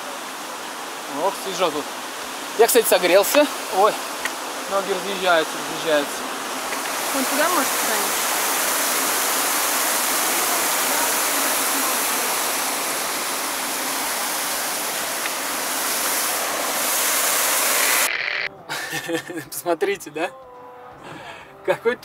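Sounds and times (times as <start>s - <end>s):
waterfall roaring: 0.0s - 18.5s.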